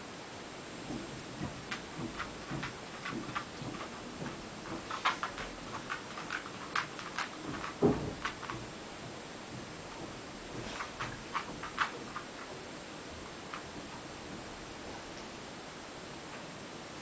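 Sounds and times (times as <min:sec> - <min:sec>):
heavy thump: 0:00.9 - 0:12.2
dog claws clicking on hard floor: 0:00.9 - 0:15.3.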